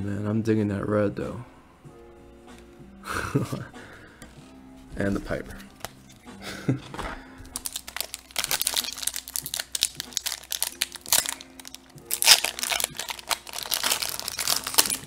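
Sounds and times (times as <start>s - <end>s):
soft background music: 0.0s - 15.0s
foil wrapper crinkling: 7.5s - 15.0s.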